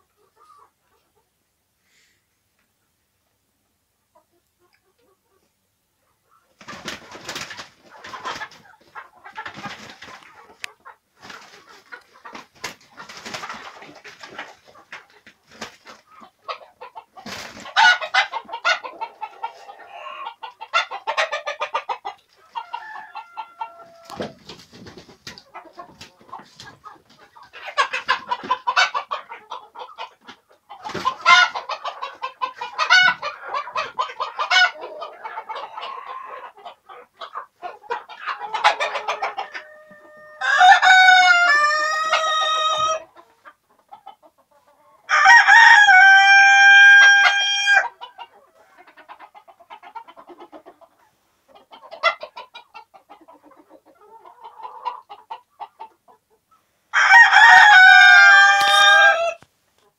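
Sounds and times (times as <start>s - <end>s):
hens clucking and cackling: 0.0s - 59.9s
rooster crowing: 22.6s - 24.2s, 39.5s - 42.6s, 45.1s - 47.9s, 56.9s - 59.4s.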